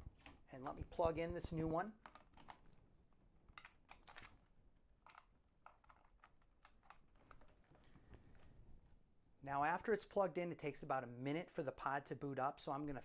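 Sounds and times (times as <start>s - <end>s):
cable connectors clicking: 2.0s - 2.7s, 5.0s - 7.6s.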